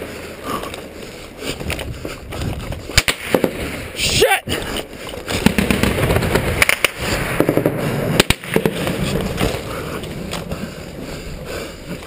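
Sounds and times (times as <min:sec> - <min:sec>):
gunshots cracking: 0:03.0 - 0:03.6, 0:05.3 - 0:09.0
machine-gun fire: 0:05.4 - 0:08.8.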